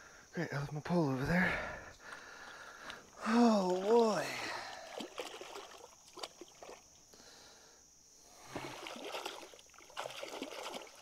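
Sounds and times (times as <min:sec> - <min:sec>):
creek water splashing: 0:02.0 - 0:07.0, 0:08.4 - 0:11.0.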